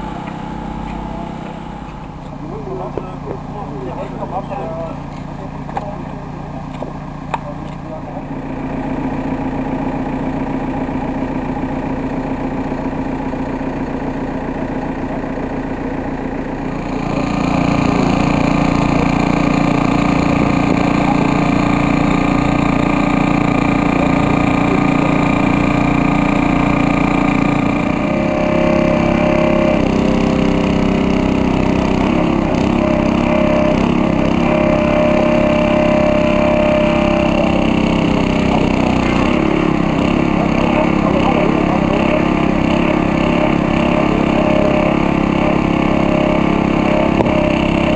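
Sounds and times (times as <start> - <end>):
small engine running: 0.0 - 47.9.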